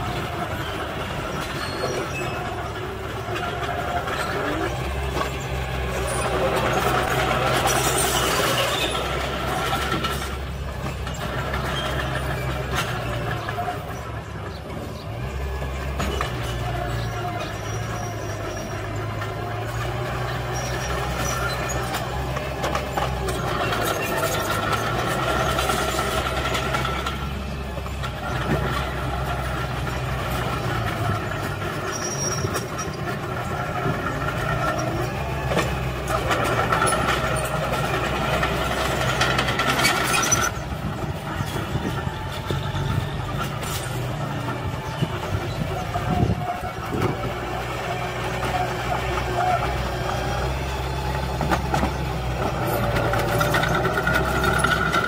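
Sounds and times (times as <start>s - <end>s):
metallic squeal of running gear: 0.0s - 10.4s, 11.0s - 14.1s, 16.0s - 27.2s, 29.6s - 47.1s
bulldozer diesel engine: 0.0s - 55.0s
steel tracks clanking: 0.0s - 55.0s.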